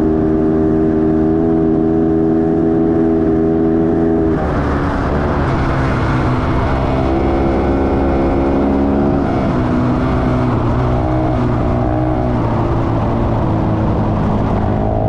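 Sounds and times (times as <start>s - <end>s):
motorcycle engine cruising: 0.0s - 15.0s.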